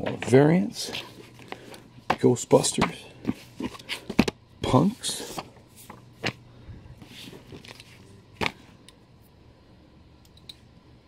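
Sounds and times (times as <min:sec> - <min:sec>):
faint steady hum: 0:00.0 - 0:11.0
paper rustling: 0:07.0 - 0:08.7.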